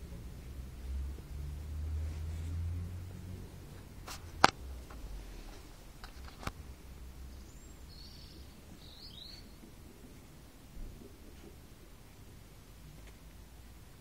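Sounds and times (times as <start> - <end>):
bird chirping: 7.2 - 9.7.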